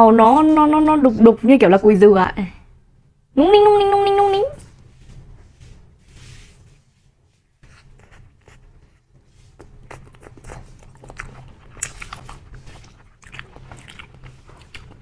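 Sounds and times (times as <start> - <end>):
chewing with wet smacks: 9.6 - 15.0.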